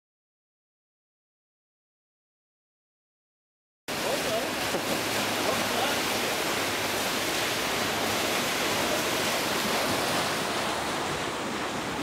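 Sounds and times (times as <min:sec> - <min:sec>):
paddle wheels churning water: 0:03.9 - 0:12.0.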